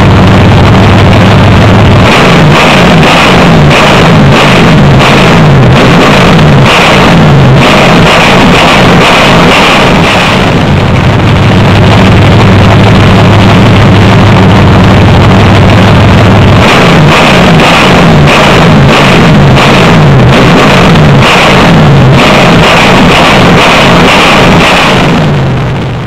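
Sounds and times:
engine running and revving: 0:00.0 - 0:26.0.

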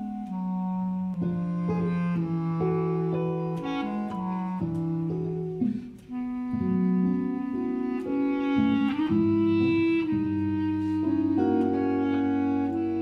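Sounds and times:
clarinets and saxophones: 0:00.0 - 0:13.0
jazz big band playing chords: 0:00.0 - 0:13.0.

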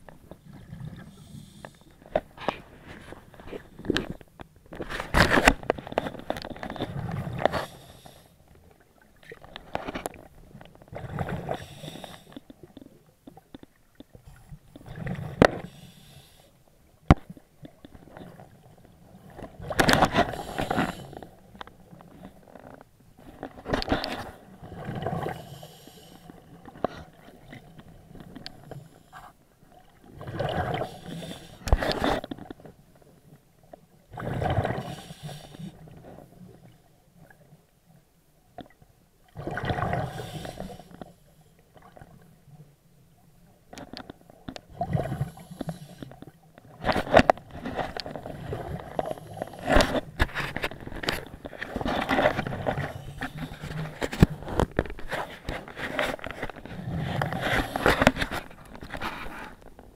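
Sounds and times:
diver breathing bubbles underwater: 0:00.4 - 0:04.1, 0:06.8 - 0:08.4, 0:10.9 - 0:12.7, 0:14.2 - 0:16.6, 0:19.8 - 0:21.5, 0:24.1 - 0:27.6, 0:30.1 - 0:32.0, 0:34.1 - 0:36.2, 0:39.4 - 0:41.2, 0:44.7 - 0:46.2, 0:48.2 - 0:50.4, 0:51.4 - 0:59.6.

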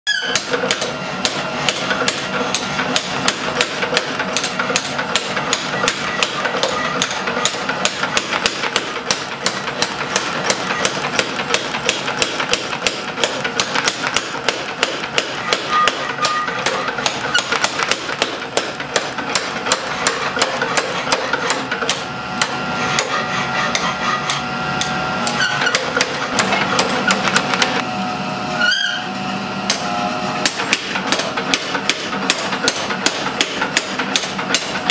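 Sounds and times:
hammer ringing on steel: 0:14.2 - 0:17.5.

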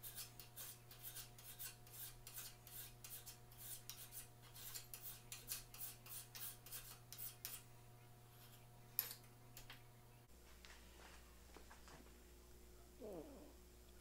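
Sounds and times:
hand file rasping on steel: 0:00.0 - 0:07.7.

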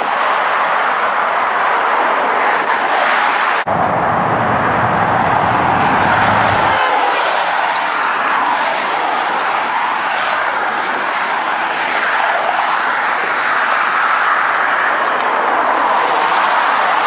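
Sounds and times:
aerosol spray can hissing: 0:07.1 - 0:13.5.

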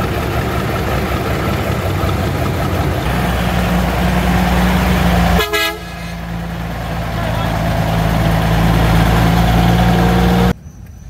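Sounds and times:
truck diesel engine running: 0:00.0 - 0:10.6
horn toot: 0:03.1 - 0:06.3.

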